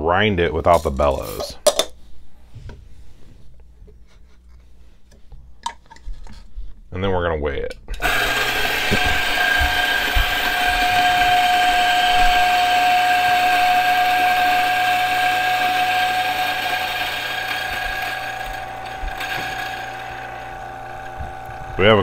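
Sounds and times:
coffee beans grinding: 0:08.0 - 0:22.0
grinder motor whine: 0:08.0 - 0:22.0.

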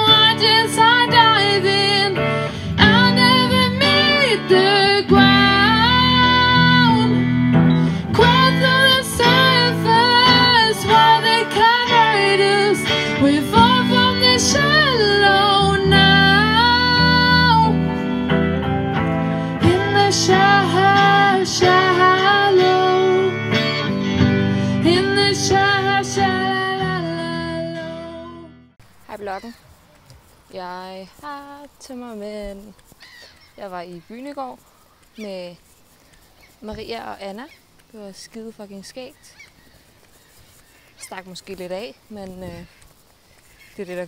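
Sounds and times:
woman singing: 0:00.0 - 0:07.4, 0:08.0 - 0:18.0, 0:19.5 - 0:23.9, 0:24.7 - 0:28.5
guitar accompaniment: 0:00.0 - 0:29.4.

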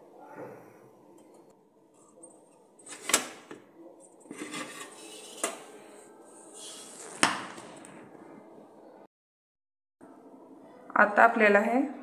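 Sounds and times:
metal scraping: 0:04.2 - 0:08.2.

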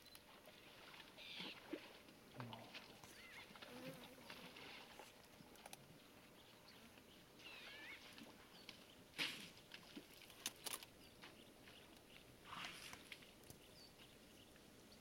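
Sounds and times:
faint bird chirps: 0:00.0 - 0:01.6, 0:03.0 - 0:03.6, 0:06.0 - 0:09.0.

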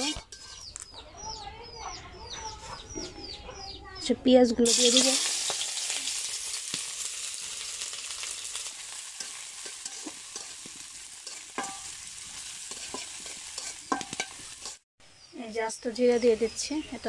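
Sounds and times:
metal spatula scraping a pan: 0:00.0 - 0:00.8, 0:08.0 - 0:14.8
onions sizzling in hot oil: 0:04.6 - 0:14.8.

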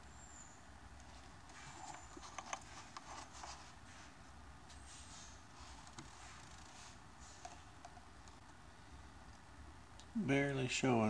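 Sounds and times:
faint low room hum: 0:00.0 - 0:11.0.

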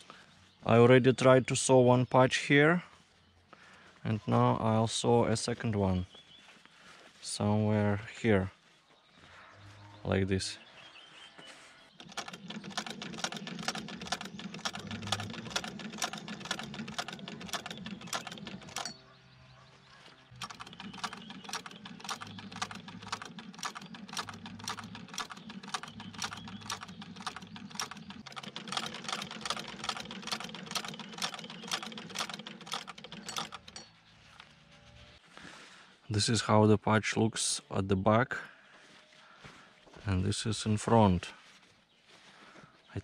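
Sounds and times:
low running hum: 0:11.7 - 0:35.8
sewing machine clattering: 0:12.0 - 0:19.0, 0:20.3 - 0:33.9.

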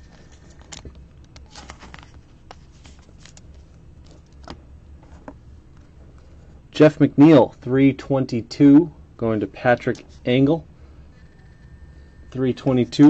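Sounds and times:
trading cards being handled: 0:00.0 - 0:06.4
low steady hum: 0:00.0 - 0:13.0.

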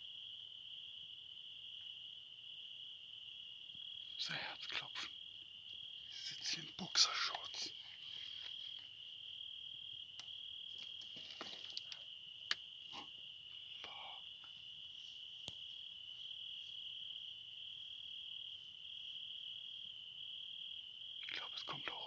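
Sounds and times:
cricket trilling: 0:00.0 - 0:22.0
faint clicks and rustles: 0:07.4 - 0:09.0, 0:10.2 - 0:12.1.

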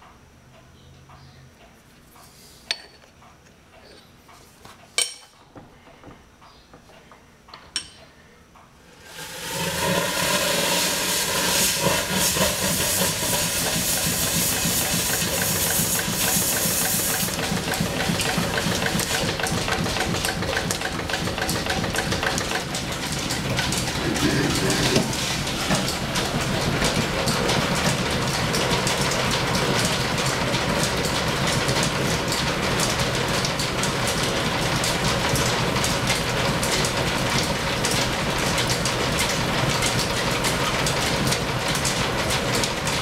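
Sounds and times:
loud steam hiss: 0:08.9 - 0:17.5
steam engine rhythmic beat: 0:09.1 - 0:29.8.

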